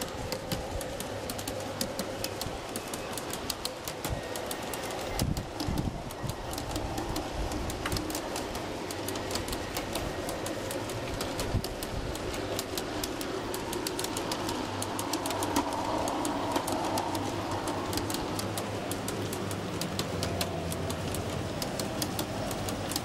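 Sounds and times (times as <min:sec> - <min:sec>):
model train wheels rolling: 0:00.0 - 0:23.0
wheels clicking on rail joints: 0:00.0 - 0:23.0.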